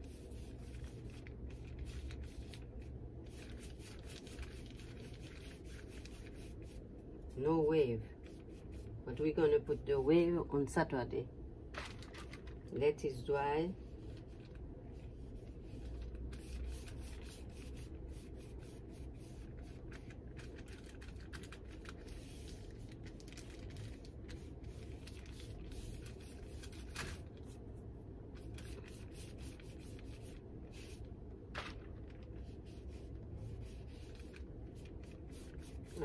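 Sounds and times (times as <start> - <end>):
paintbrush scratching on paper: 0.0 - 2.6, 3.3 - 7.6, 8.2 - 9.9, 15.0 - 20.1, 24.3 - 26.9, 28.4 - 31.0, 32.4 - 36.0
low room hum: 0.0 - 36.0.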